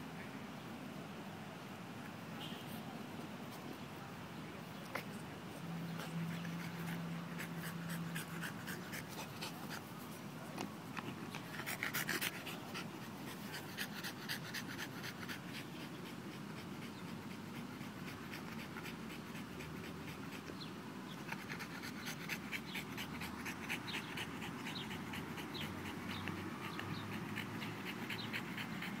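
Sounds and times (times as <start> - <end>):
dog panting: 5.9 - 10.0, 10.9 - 29.0.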